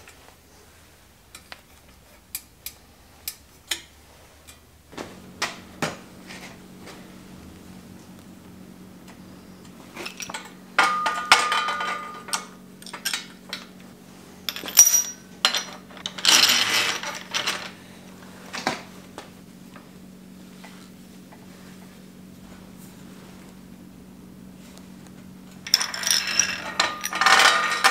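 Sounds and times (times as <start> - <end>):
metal parts clinking and rattling: 10.0 - 13.7, 14.5 - 17.8, 25.6 - 27.9.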